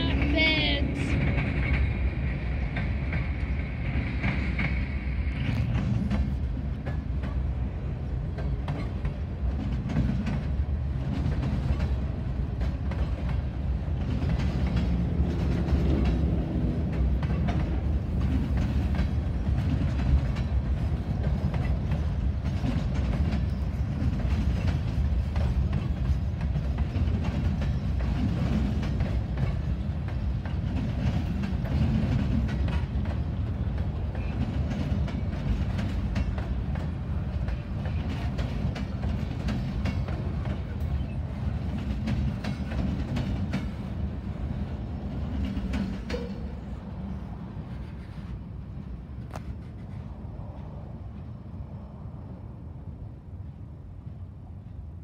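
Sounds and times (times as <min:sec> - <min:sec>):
wheels clicking over rail joints: 0:00.0 - 0:50.0
train wheels rumbling on rail: 0:00.0 - 0:55.0.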